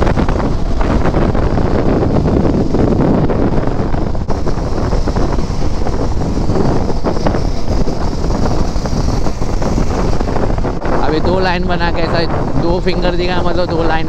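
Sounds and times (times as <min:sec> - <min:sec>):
motorcycle drone: 0:00.0 - 0:14.0
road noise: 0:00.0 - 0:14.0
wind rushing over microphone: 0:00.0 - 0:14.0.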